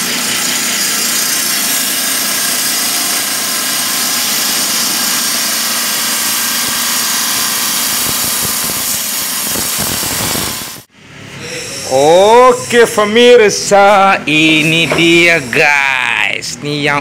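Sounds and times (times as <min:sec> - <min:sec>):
motor hum: 0:00.0 - 0:10.9
wet saw grinding stone: 0:00.0 - 0:10.9.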